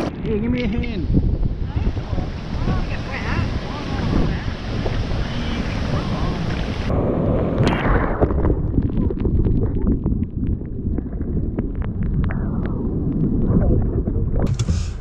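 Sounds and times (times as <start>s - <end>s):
muffled churning surf: 0.0s - 8.3s.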